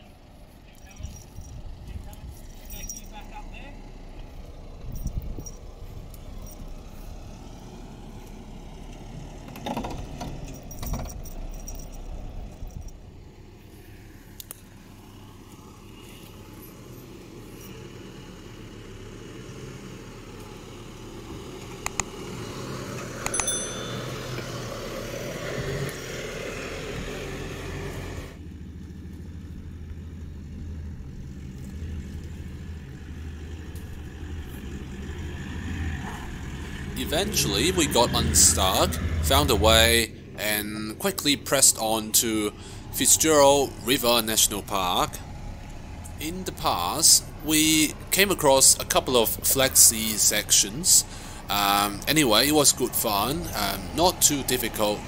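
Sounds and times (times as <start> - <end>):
off-road vehicle engine: 0.0 - 55.0
sharp knocks and clicks: 21.8 - 22.1.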